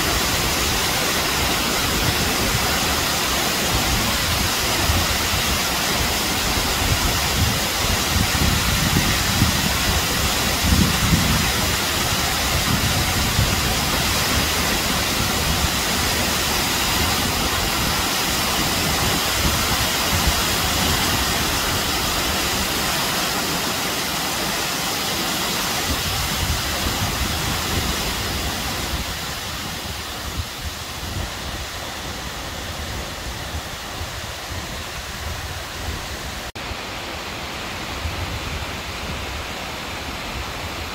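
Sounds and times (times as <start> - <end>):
waterfall splashing onto rocks: 0.0 - 37.2.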